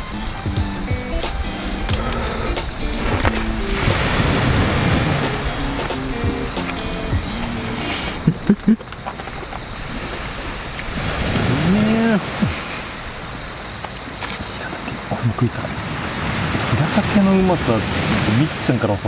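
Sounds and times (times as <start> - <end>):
person humming: 0.0 - 3.8
high-pitched insect drone: 0.0 - 17.6
constant hiss: 0.0 - 19.0.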